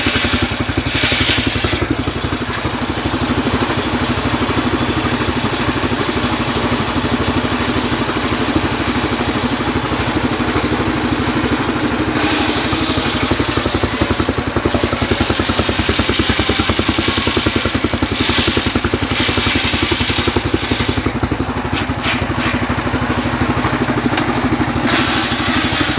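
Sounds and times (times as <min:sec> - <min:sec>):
saw blade ripping through log: 0:00.0 - 0:01.9, 0:24.9 - 0:25.9
engine pulsing: 0:00.0 - 0:25.9.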